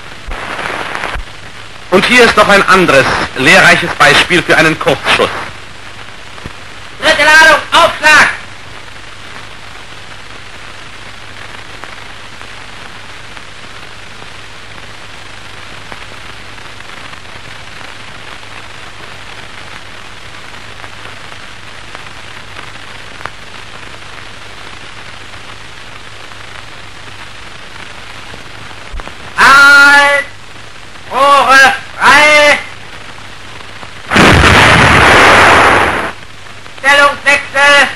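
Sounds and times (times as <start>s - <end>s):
film soundtrack hiss and crackle: 0.0s - 37.9s.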